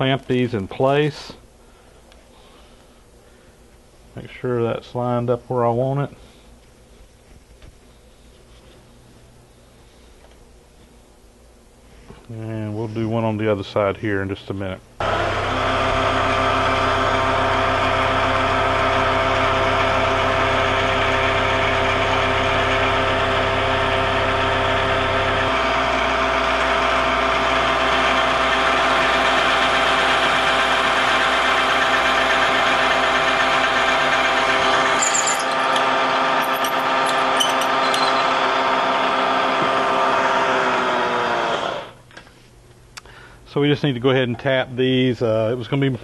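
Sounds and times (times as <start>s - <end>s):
milling machine drilling: 25.4s - 42.0s.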